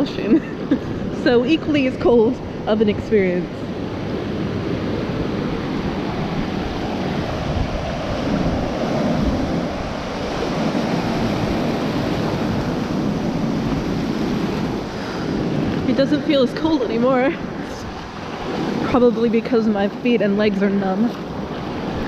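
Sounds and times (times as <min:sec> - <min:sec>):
breaking waves rushing: 0:00.0 - 0:22.0
wind rumbling on microphone: 0:00.0 - 0:22.0.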